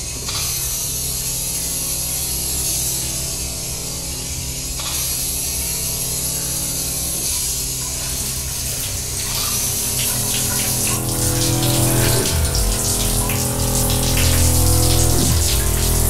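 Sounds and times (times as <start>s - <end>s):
shower water spraying: 7.9s - 16.0s.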